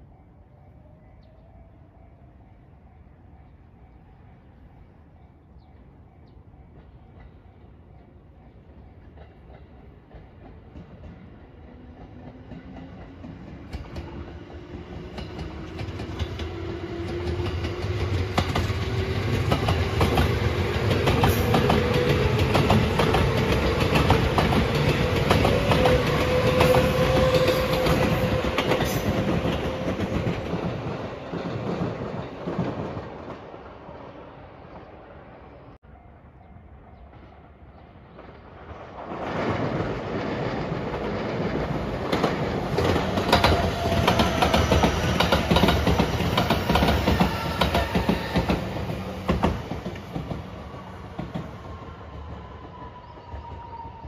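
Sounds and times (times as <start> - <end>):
wheels clacking over rail joints: 9.1 - 33.4, 40.6 - 51.7.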